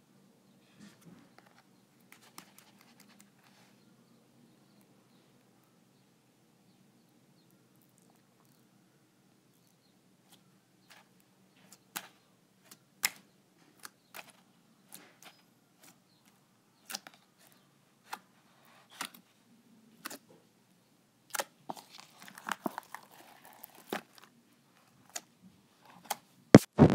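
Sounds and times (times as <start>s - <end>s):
slime squished by hand: 21.3s - 24.3s.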